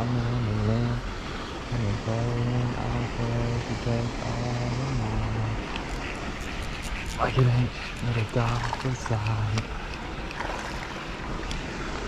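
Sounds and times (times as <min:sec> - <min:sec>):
man humming: 0:00.0 - 0:01.1, 0:01.8 - 0:05.7.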